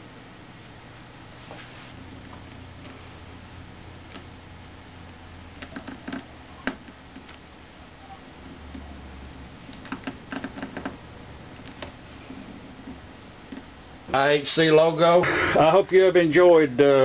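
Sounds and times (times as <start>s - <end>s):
low room hum: 0.0s - 17.0s.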